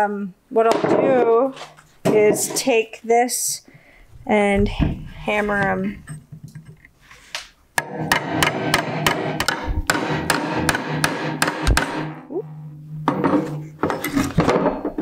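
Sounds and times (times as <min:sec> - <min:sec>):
hammer striking metal punch: 0:07.8 - 0:12.2.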